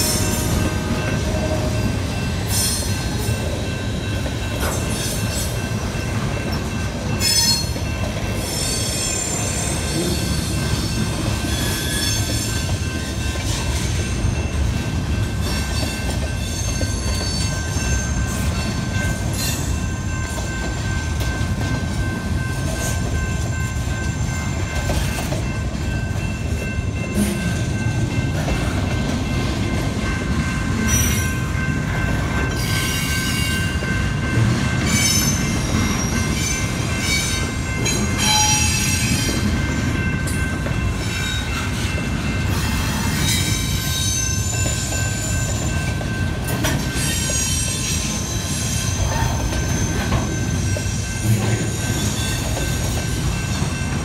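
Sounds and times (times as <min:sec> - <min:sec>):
train wheels rumbling on rail: 0:00.0 - 0:54.0
high-pitched wheel squeals: 0:47.0 - 0:52.6.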